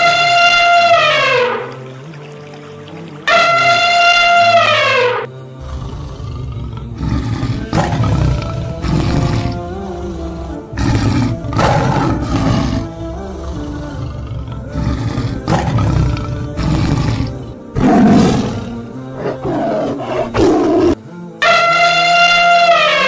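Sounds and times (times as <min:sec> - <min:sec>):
background music: 0:00.0 - 0:23.0
lion roaring: 0:03.3 - 0:21.0.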